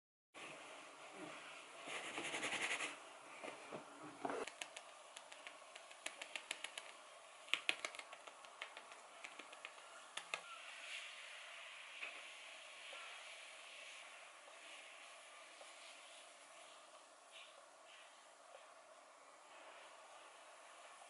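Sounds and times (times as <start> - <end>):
low room hiss: 0.4 - 21.0
light clicks and taps: 4.4 - 10.5.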